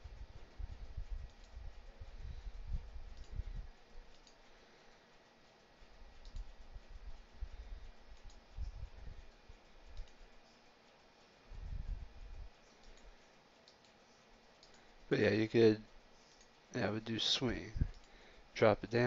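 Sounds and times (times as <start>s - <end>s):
computer mouse clicks: 1.0s - 2.2s, 3.0s - 11.3s, 12.2s - 15.0s, 15.9s - 16.6s, 17.8s - 18.3s.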